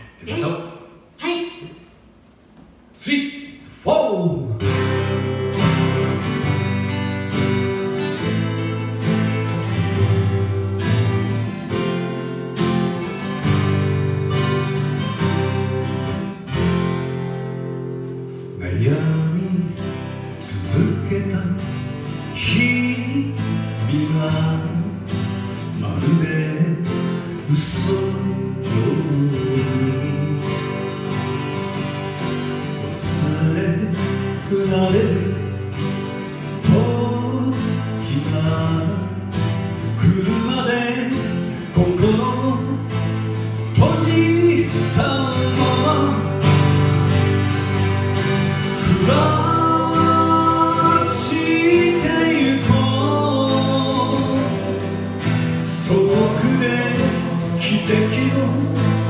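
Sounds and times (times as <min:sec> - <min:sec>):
acoustic guitars strumming: 0:00.0 - 0:59.0
person singing: 0:48.7 - 0:55.1.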